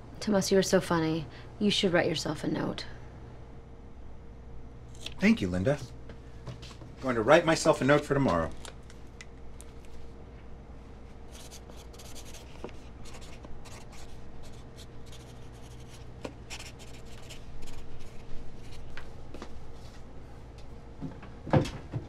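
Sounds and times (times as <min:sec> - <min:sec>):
low room hum: 0:00.0 - 0:22.0
pen scratching on paper: 0:11.3 - 0:18.8.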